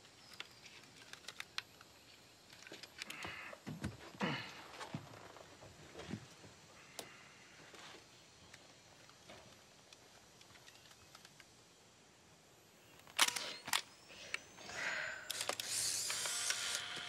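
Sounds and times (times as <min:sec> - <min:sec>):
rustling and small clicks: 0:00.0 - 0:03.7, 0:07.7 - 0:11.7
camera shutter clicking: 0:13.1 - 0:13.9, 0:15.3 - 0:17.0.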